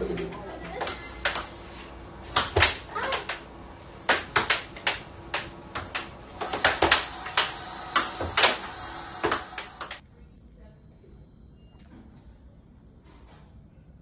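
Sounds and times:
air hockey puck clacking: 0.8 - 1.6, 2.2 - 10.0.

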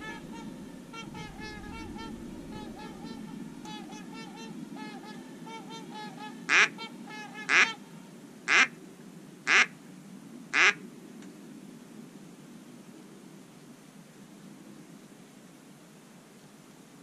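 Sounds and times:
ducks quacking: 0.0 - 8.7, 9.5 - 9.7, 10.6 - 10.8.

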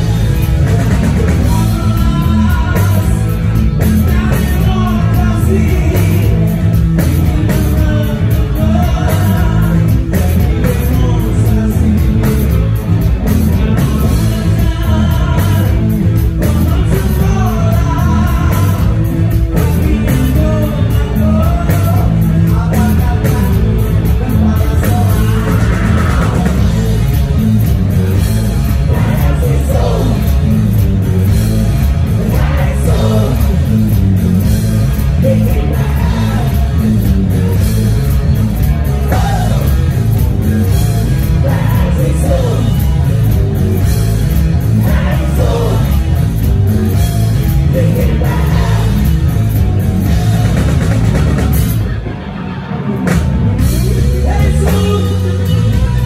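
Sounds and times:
person singing lead vocal: 0.0 - 27.3, 28.7 - 30.7, 32.1 - 33.9, 34.9 - 37.0, 39.0 - 40.0, 41.1 - 43.1, 44.6 - 46.2, 47.6 - 49.4, 53.8 - 56.0
rock band playing live: 0.0 - 56.0.

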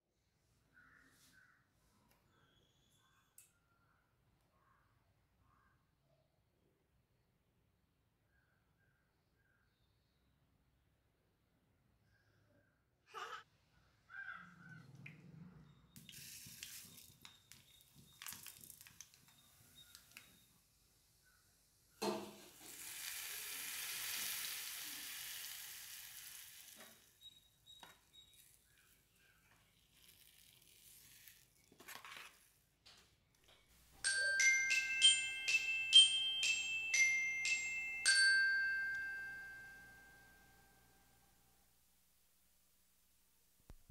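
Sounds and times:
food sizzling hiss: 16.0 - 20.3, 22.0 - 27.2
ringing chime melody: 34.0 - 40.8.

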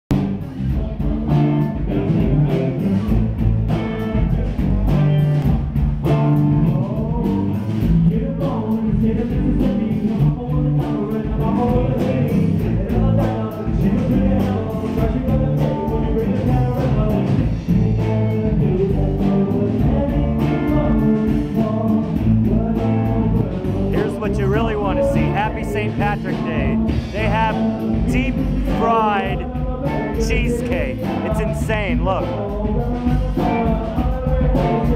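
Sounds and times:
drums: 0.1 - 34.9
guitar: 0.1 - 34.9
person singing: 8.1 - 34.9.

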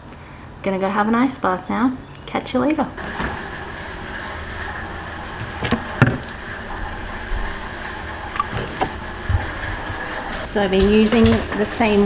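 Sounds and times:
freezer humming: 3.0 - 12.0
plastic tubs knocking: 5.4 - 6.4.

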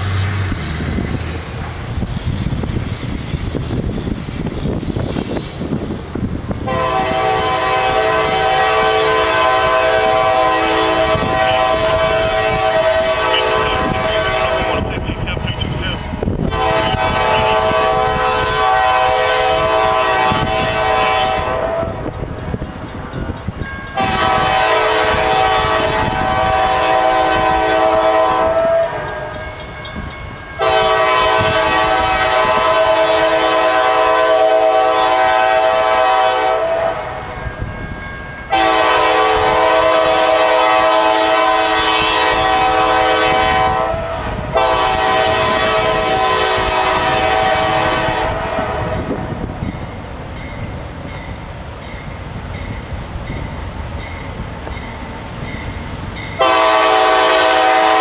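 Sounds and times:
train rumble: 0.0 - 58.0
multi-tone train air horn: 6.6 - 15.0, 16.4 - 22.1, 24.0 - 29.4, 30.6 - 37.2, 38.5 - 49.4, 56.4 - 58.0.

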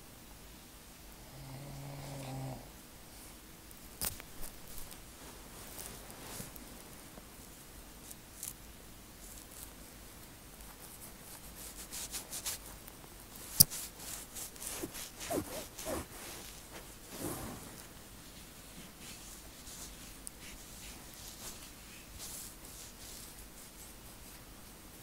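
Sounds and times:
fingertips scratching scalp: 10.6 - 16.8.

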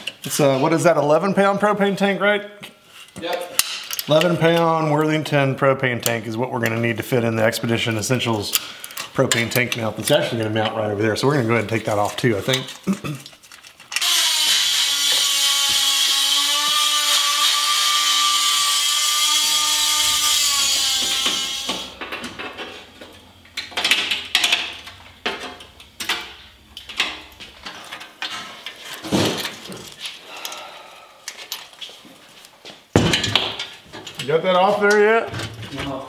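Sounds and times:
rotary tool grinding metal: 13.5 - 22.8.

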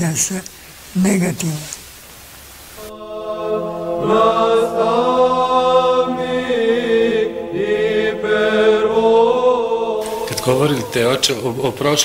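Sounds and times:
choir chanting: 2.8 - 12.0.

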